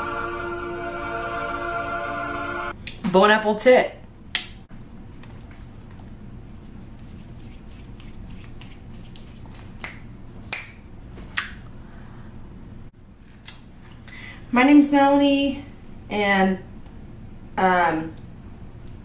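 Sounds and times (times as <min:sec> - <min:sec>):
low steady hum: 0:00.0 - 0:19.0
fingers snapping: 0:08.0 - 0:11.6.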